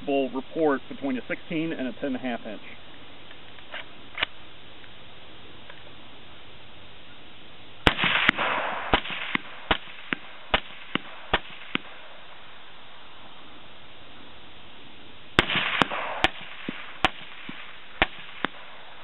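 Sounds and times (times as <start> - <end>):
suppressed rifle shots: 7.8 - 12.5, 15.3 - 19.0.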